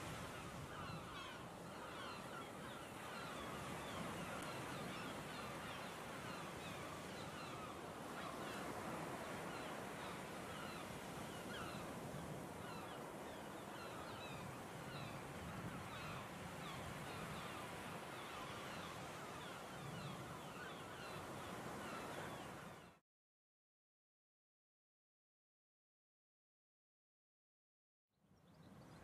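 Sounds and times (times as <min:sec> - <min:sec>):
flock of birds calling: 0:00.2 - 0:22.9.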